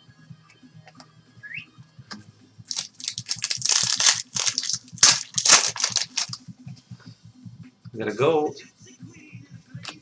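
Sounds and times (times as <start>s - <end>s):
foil wrapper torn and crinkled: 2.7s - 6.4s.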